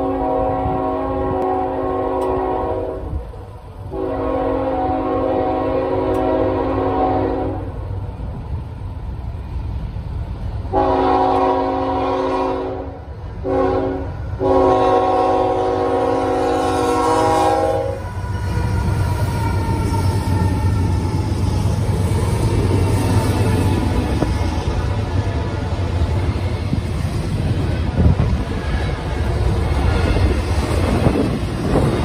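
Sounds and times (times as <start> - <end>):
locomotive air horn blasts: 0.0 - 3.3, 3.9 - 7.7, 10.7 - 21.5
locomotives rumbling past: 0.0 - 32.0.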